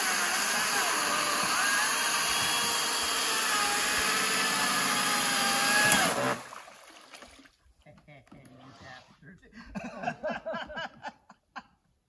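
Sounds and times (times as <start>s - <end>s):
chainsaw cutting log: 0.0s - 6.6s.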